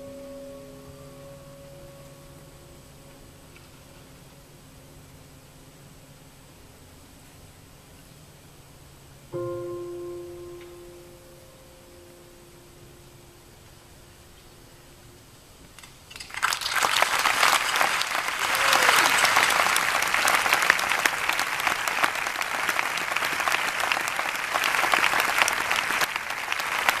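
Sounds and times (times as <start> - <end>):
audience applauding: 16.1 - 27.0.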